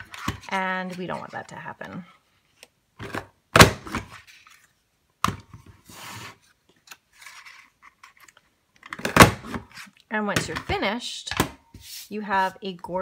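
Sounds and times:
paper sliding and rustling: 0:05.8 - 0:08.4, 0:11.8 - 0:12.5.

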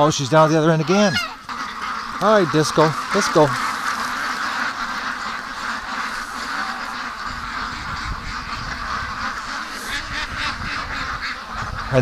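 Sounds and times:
ducks quacking: 0:00.0 - 0:12.0.

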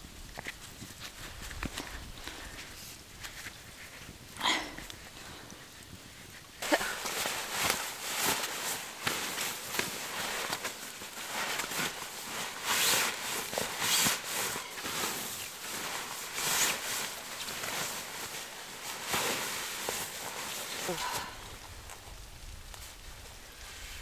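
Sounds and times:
sleeping bag fabric rustling: 0:00.3 - 0:24.0.

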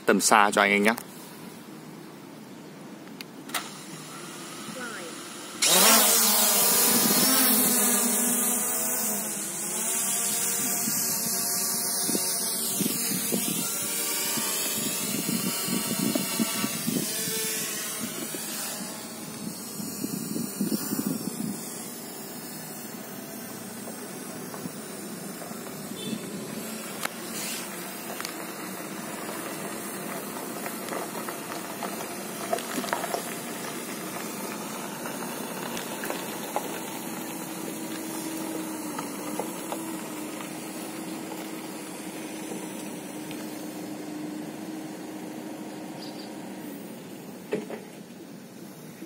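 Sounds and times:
drone propellers whining: 0:03.5 - 0:47.9.

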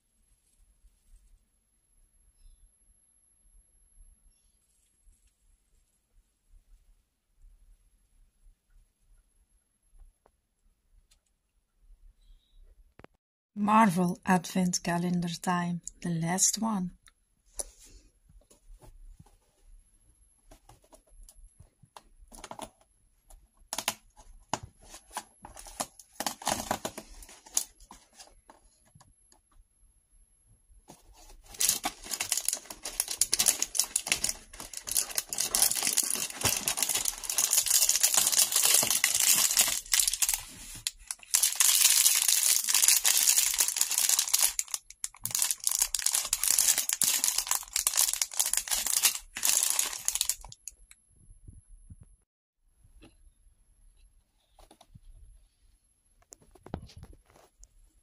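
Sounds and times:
cardboard clicks and crackles: 0:20.5 - 0:22.9, 0:23.7 - 0:29.1, 0:30.9 - 0:50.6
cardboard tearing and crinkling: 0:24.9 - 0:27.7, 0:31.1 - 0:50.6
plastic bag handled: 0:30.9 - 0:50.6.

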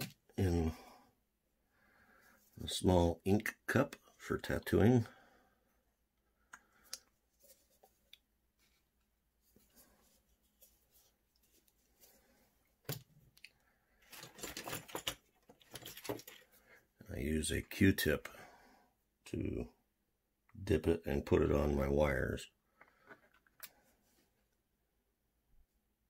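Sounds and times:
rustling and scraping: 0:07.2 - 0:13.4, 0:14.0 - 0:16.8.

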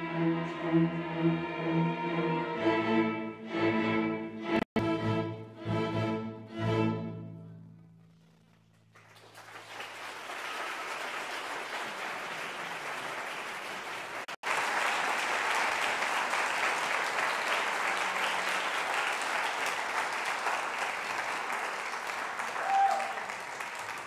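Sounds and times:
audience applauding: 0:08.7 - 0:24.0.

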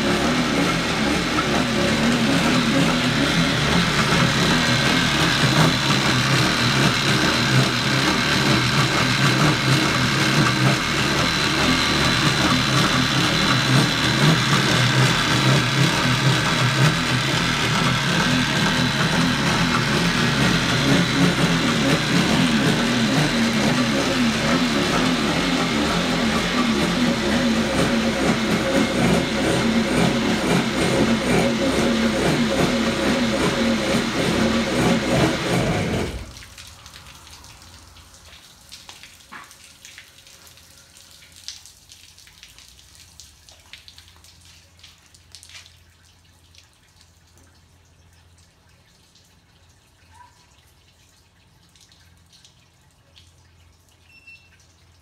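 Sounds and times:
jet ski engine running: 0:00.0 - 0:36.4.

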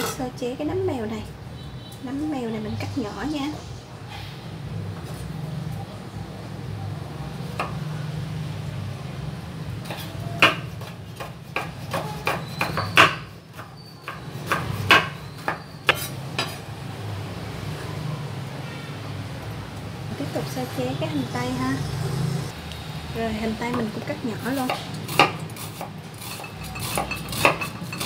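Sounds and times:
knife chopping on wooden board: 0:09.8 - 0:16.6.

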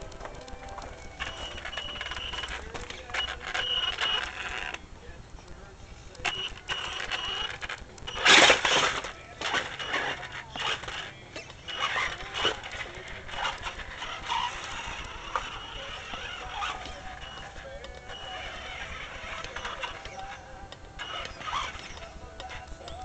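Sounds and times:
high motor whine: 0:00.0 - 0:23.0
tyres clicking and knocking on rock: 0:06.2 - 0:23.0.

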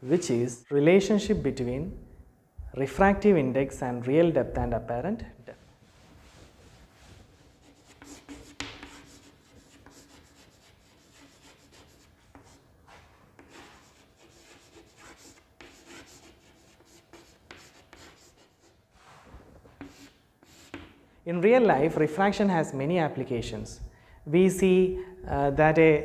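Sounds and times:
cloth duster wiping board: 0:05.6 - 0:20.9
chalk scratching on blackboard: 0:06.2 - 0:21.0.

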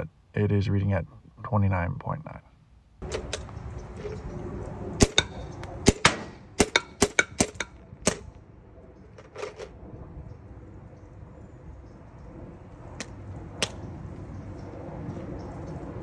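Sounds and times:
balls striking paver: 0:05.0 - 0:08.4, 0:13.0 - 0:13.9
paintball gun pops: 0:13.0 - 0:13.8.

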